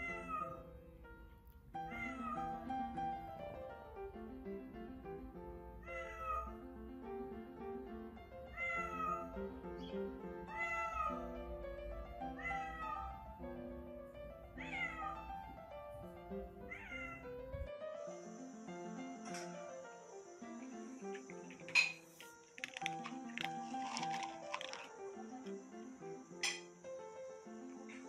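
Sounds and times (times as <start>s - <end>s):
cat meowing: 0.0s - 0.6s, 1.8s - 2.8s, 5.8s - 6.6s, 8.5s - 9.4s, 10.4s - 11.4s, 12.3s - 13.2s, 14.5s - 15.4s, 16.6s - 17.7s
background music: 0.0s - 28.0s.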